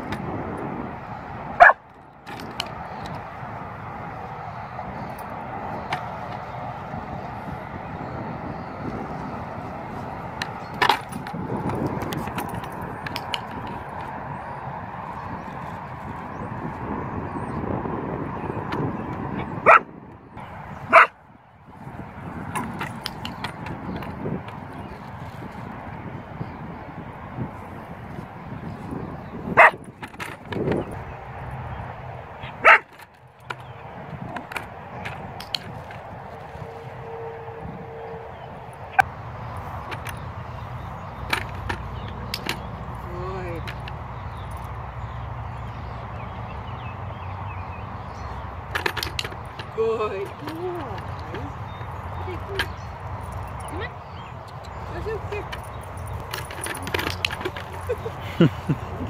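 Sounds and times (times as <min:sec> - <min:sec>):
outdoor background noise: 0:00.0 - 0:59.0
dog barking: 0:01.6 - 0:01.8, 0:19.6 - 0:19.9, 0:20.9 - 0:21.2, 0:29.6 - 0:29.8, 0:32.4 - 0:32.9.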